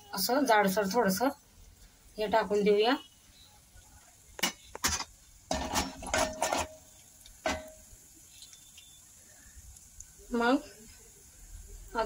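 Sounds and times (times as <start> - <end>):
metal spoon scraping a pot: 4.5 - 6.9.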